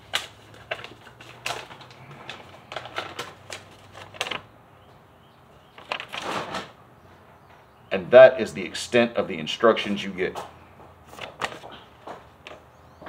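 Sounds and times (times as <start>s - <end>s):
paper crackling: 0.0s - 4.5s, 5.7s - 6.7s, 11.1s - 11.8s.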